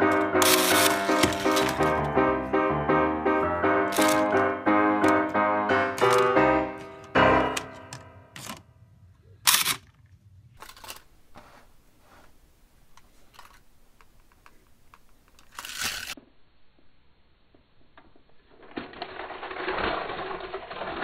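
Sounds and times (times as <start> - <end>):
plastic scraping: 0.0 - 2.2, 3.9 - 4.4
piano tune: 0.0 - 8.6
plastic toy track pieces clicking: 0.4 - 1.8, 3.9 - 4.3, 13.3 - 16.2, 18.5 - 21.0.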